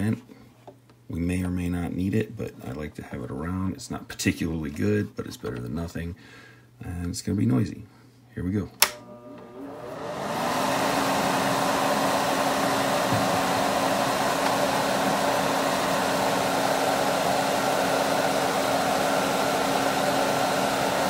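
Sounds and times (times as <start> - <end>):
extraction fan running: 8.8 - 21.0.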